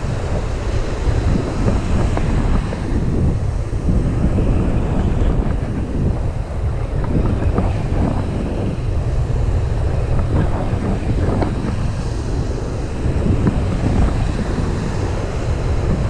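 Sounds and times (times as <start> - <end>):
surf breaking on shore: 0.0 - 16.0
wind buffeting microphone: 0.0 - 16.0.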